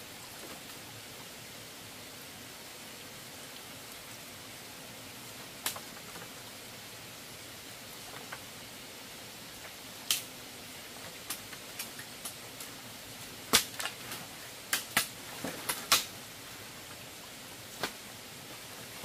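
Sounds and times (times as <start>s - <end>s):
steady hiss: 0.0s - 19.0s
sharp cracks and pops: 5.6s - 6.3s, 9.6s - 10.3s, 11.1s - 12.7s, 13.5s - 16.2s.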